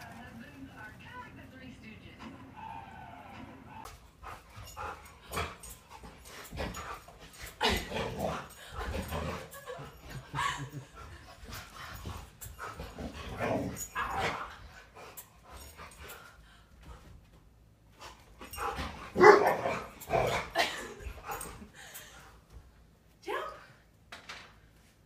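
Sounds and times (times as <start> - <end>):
dog barking: 19.2 - 19.8.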